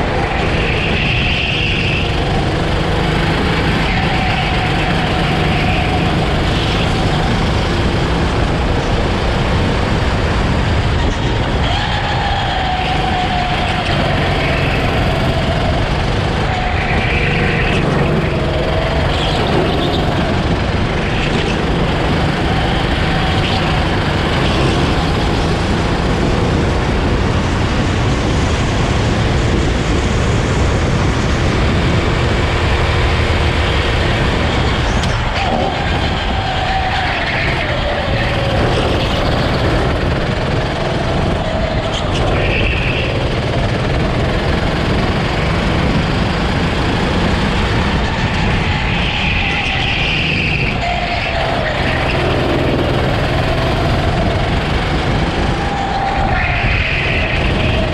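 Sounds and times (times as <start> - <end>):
go-kart engine accelerating: 0.0 - 57.9
wind and road noise: 0.0 - 57.9.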